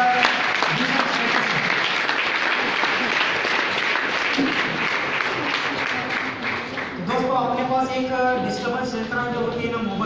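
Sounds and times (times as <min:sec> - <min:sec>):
crowd applauding: 0:00.0 - 0:07.3.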